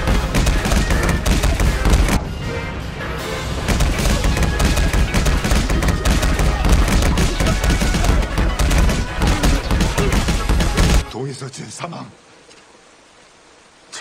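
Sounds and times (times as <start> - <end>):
dramatic orchestral score: 0.0 - 11.2
heavy rain pouring: 0.0 - 14.0.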